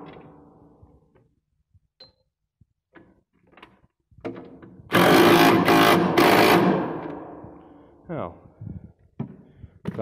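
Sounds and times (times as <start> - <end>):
impact wrench running: 4.9 - 7.2.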